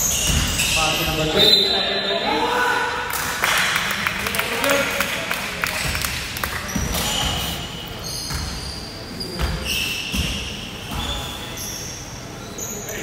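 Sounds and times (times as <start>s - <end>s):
sneaker squeaks: 0.0s - 2.3s, 5.8s - 13.0s
basketball bouncing on hardwood: 8.3s - 8.6s.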